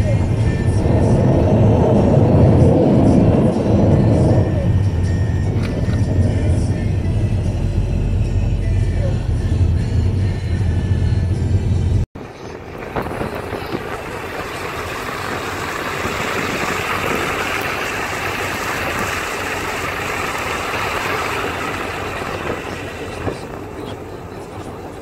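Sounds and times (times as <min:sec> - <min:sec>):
car road noise from inside: 0:00.0 - 0:25.0
deep rumble: 0:00.0 - 0:25.0
rushing wind and tyres: 0:00.0 - 0:25.0.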